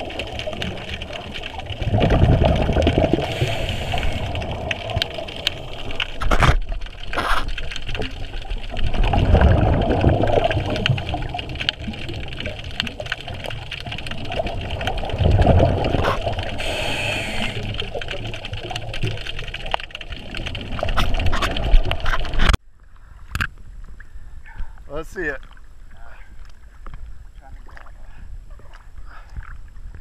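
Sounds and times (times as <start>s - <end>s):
exhaled bubbles gurgling underwater: 0.0s - 22.6s
regulator inhale hiss: 3.2s - 4.4s, 16.6s - 17.8s.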